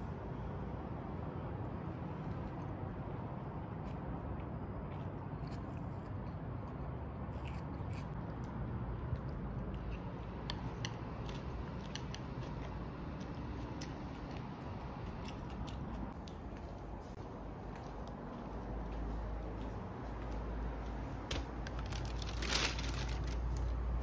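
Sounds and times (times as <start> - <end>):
low room hum: 0.0 - 24.0
chewing: 3.8 - 20.4.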